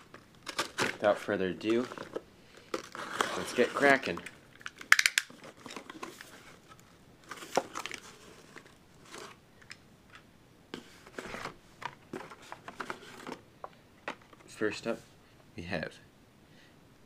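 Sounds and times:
plastic clicks and crinkles: 0:00.0 - 0:10.3
cardboard flaps rustling and scraping: 0:02.9 - 0:04.2, 0:10.8 - 0:13.4.

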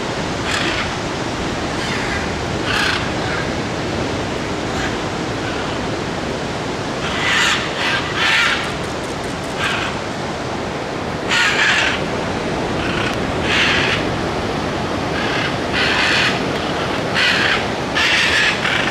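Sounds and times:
steady rushing noise: 0:00.0 - 0:18.9
macaws squawking: 0:00.5 - 0:00.9, 0:01.8 - 0:03.5, 0:07.0 - 0:08.8, 0:09.4 - 0:10.0, 0:11.3 - 0:12.1, 0:12.8 - 0:14.1, 0:15.2 - 0:18.9.

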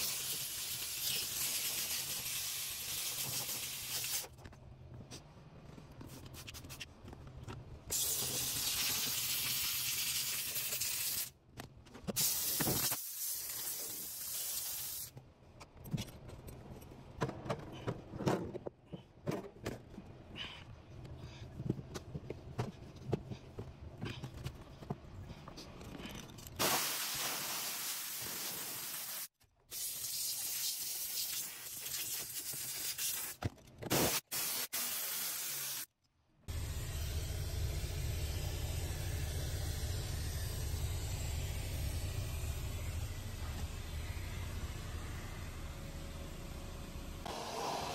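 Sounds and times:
steam cleaner hissing: 0:26.6 - 0:32.0, 0:33.9 - 0:35.9, 0:47.3 - 0:47.9.

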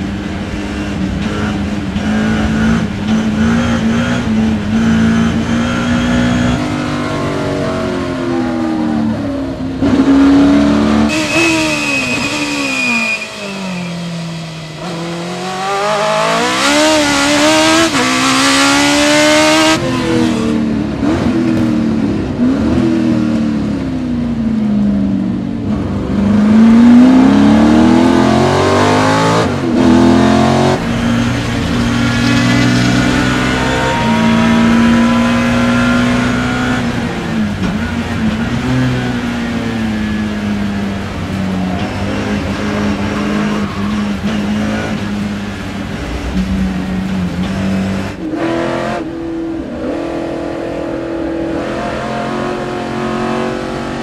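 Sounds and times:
race car engine revving: 0:00.0 - 0:25.0, 0:25.6 - 0:54.0
tire squeal: 0:11.0 - 0:16.8, 0:30.7 - 0:45.1.

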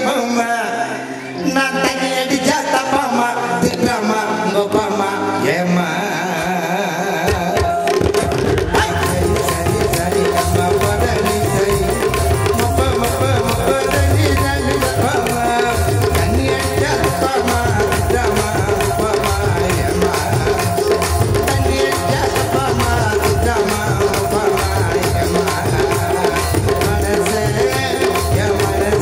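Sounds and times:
drums beating: 0:07.2 - 0:29.0.

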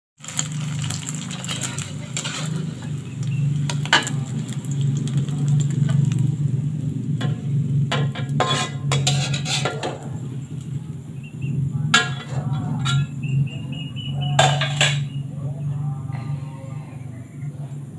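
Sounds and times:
oil sizzling: 0:00.2 - 0:15.3
metal spatula scraping a wok: 0:00.4 - 0:04.5, 0:07.2 - 0:10.2, 0:11.9 - 0:13.2, 0:14.4 - 0:15.2
low hum: 0:01.8 - 0:17.9.

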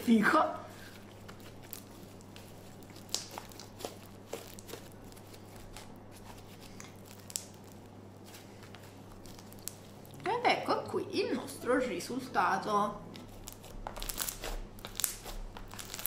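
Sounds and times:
low steady hum: 0:00.0 - 0:16.0
slime crackling and popping: 0:01.0 - 0:10.4, 0:13.2 - 0:16.0.

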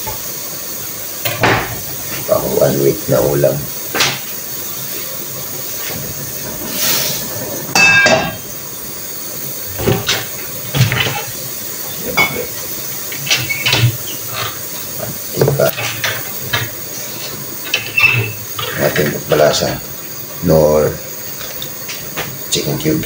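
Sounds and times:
garlic and onion sizzling: 0:00.0 - 0:23.0.

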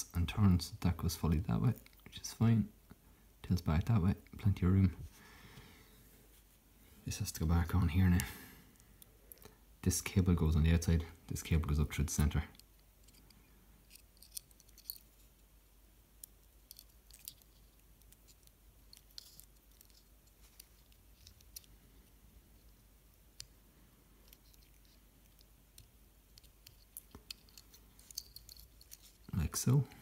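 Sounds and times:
small plastic parts clicking: 0:16.2 - 0:23.6, 0:24.2 - 0:29.3.

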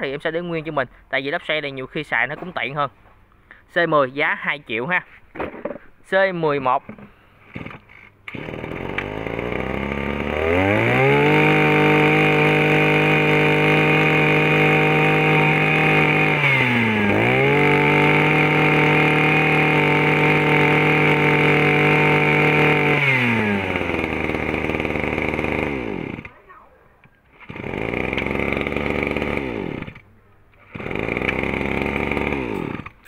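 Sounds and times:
small two-stroke engine revving: 0:07.5 - 0:26.4, 0:27.3 - 0:30.0, 0:30.6 - 0:33.0.

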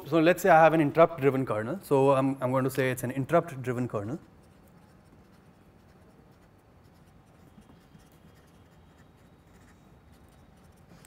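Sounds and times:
pen scratching on paper: 0:04.4 - 0:11.0.

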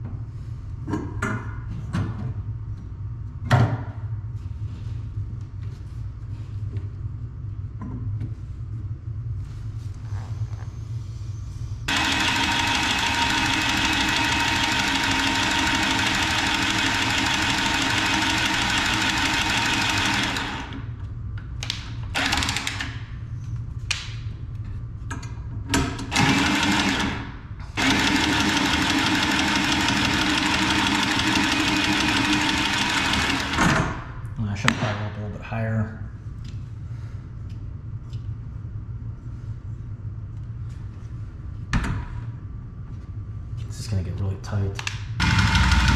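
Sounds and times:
cordless tubing cutter cutting pipe: 0:11.9 - 0:20.8, 0:22.2 - 0:22.9, 0:26.1 - 0:27.2, 0:27.8 - 0:33.6, 0:45.2 - 0:45.9.

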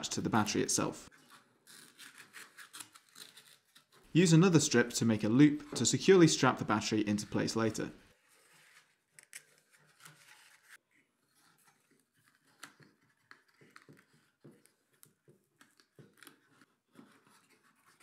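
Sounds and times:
velcro strap clicks and rustles: 0:01.2 - 0:04.1, 0:08.6 - 0:10.8.

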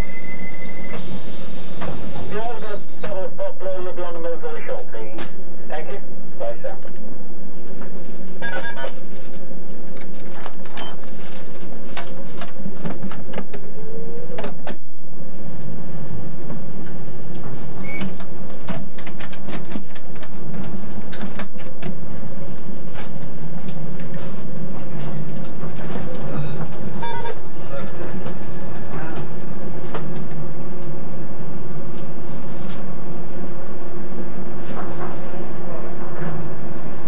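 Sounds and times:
short rising whine: 0:00.0 - 0:03.0
train electric drone: 0:11.5 - 0:37.0.

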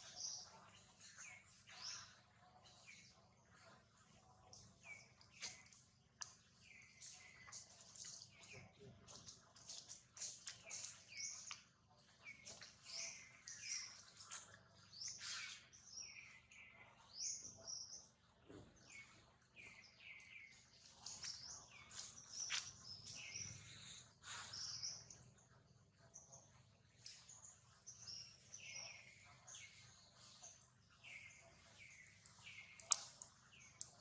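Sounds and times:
small birds chirping: 0:00.0 - 0:34.0.

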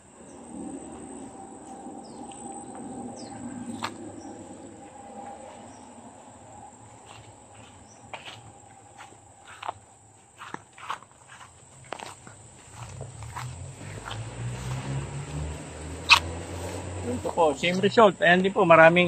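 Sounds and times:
high-pitched insect drone: 0:00.0 - 0:10.2
footsteps: 0:00.9 - 0:18.0
rustling through vines: 0:10.4 - 0:17.8.

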